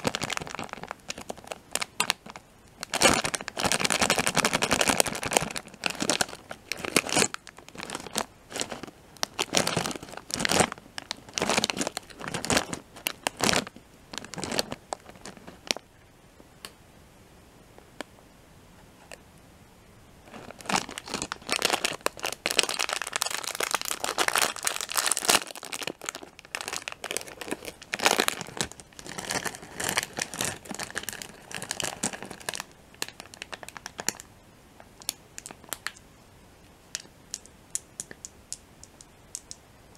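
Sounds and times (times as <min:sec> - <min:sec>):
plastic packet crinkling and tearing: 0:00.0 - 0:15.8, 0:20.3 - 0:34.3, 0:35.0 - 0:36.0.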